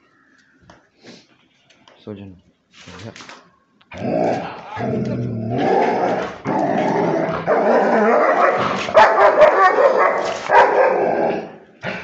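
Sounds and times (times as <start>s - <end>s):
dog barking and growling: 3.9s - 12.0s.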